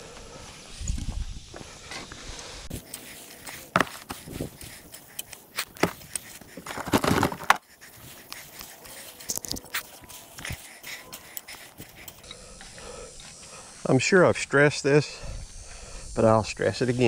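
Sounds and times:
shovel scraping: 0:02.7 - 0:12.2
wood chips crunching and rustling: 0:05.6 - 0:07.6.

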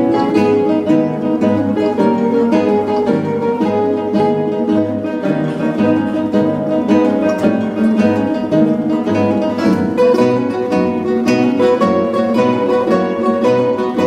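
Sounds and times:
classical guitars playing: 0:00.0 - 0:14.0.

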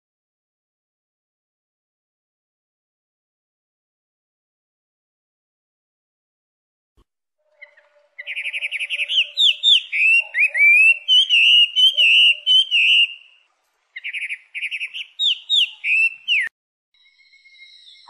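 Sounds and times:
bird singing trills and whistles: 0:07.5 - 0:13.4, 0:14.0 - 0:18.0.

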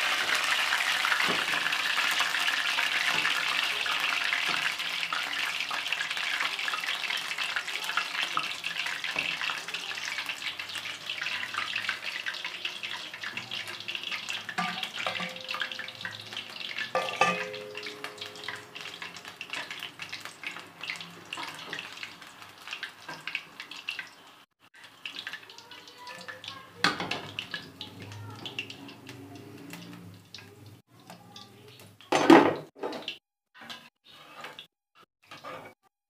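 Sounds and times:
bowl and utensils clicking: 0:17.0 - 0:18.4.

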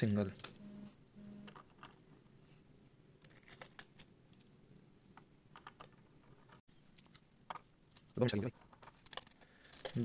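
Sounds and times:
coins clicking onto a stack: 0:09.1 - 0:10.0.

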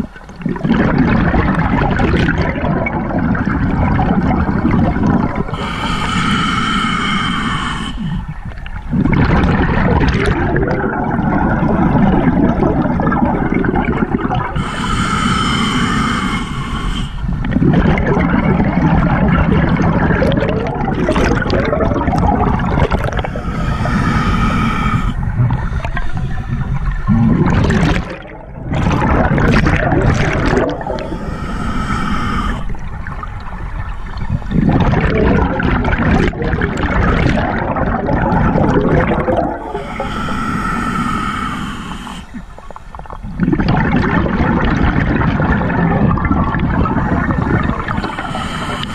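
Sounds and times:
exhaled bubbles rumbling: 0:00.0 - 0:48.9
inhale through scuba regulator: 0:05.4 - 0:08.4, 0:14.1 - 0:17.4, 0:21.1 - 0:32.9, 0:38.7 - 0:43.2, 0:47.2 - 0:48.9.

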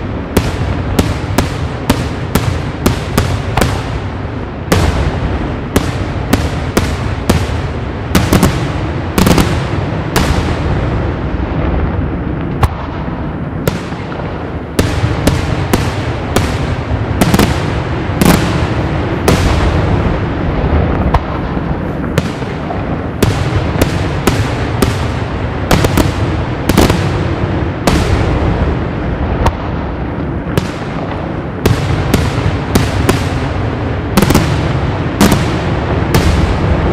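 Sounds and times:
fireworks bangs: 0:00.0 - 0:36.9
low rumble of fireworks reports: 0:00.0 - 0:36.9.

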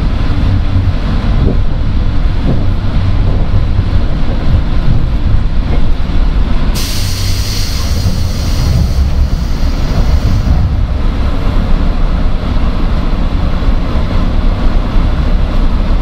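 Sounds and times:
train wheels and motors rumbling: 0:00.0 - 0:16.0
high hiss noise: 0:06.8 - 0:10.8.

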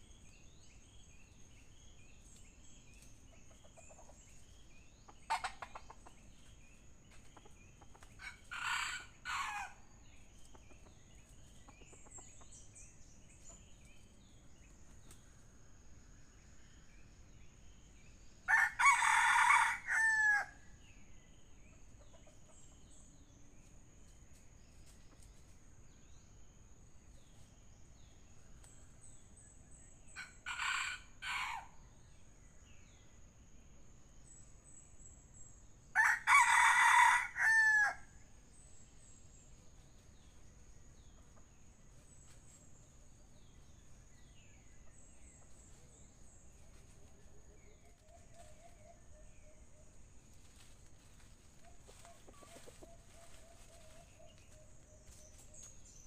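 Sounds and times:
rooster crowing: 0:08.2 - 0:09.8, 0:18.5 - 0:20.6, 0:36.0 - 0:38.1
small bird chirps: 0:10.2 - 0:15.3.

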